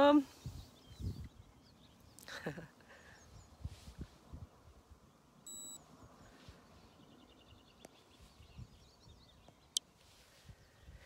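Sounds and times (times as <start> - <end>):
short electronic beep: 5.5 - 5.8.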